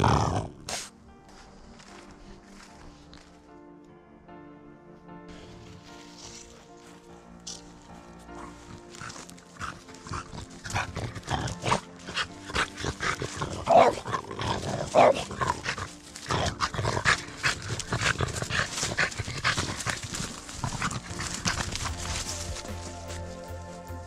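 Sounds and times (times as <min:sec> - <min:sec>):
dog barking and grunting: 0:00.0 - 0:00.9, 0:08.3 - 0:22.9.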